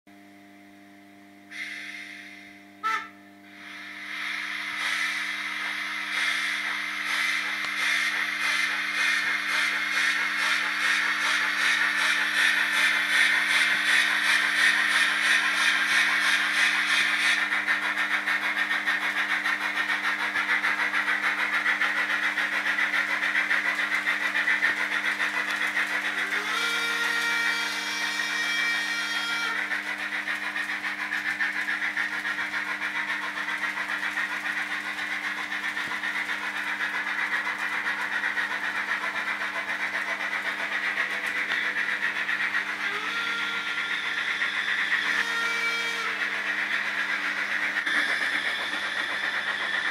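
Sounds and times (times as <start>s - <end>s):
hiss: 1.5s - 2.5s, 3.5s - 42.0s
locomotive whistle: 1.5s - 6.4s, 25.9s - 30.4s, 42.6s - 46.8s
model train wheels clattering: 4.6s - 49.9s.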